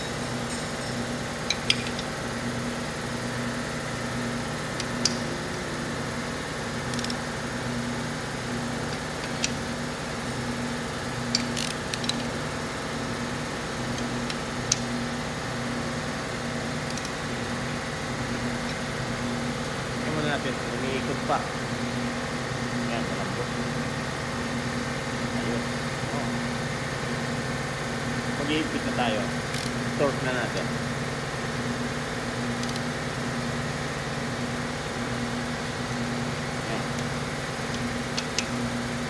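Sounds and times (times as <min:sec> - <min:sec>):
motor drone: 0:00.0 - 0:39.0
socket wrench clicks: 0:01.5 - 0:02.1, 0:04.8 - 0:05.3, 0:06.9 - 0:07.2, 0:11.3 - 0:12.3, 0:13.9 - 0:14.9, 0:16.8 - 0:17.2, 0:32.6 - 0:32.8.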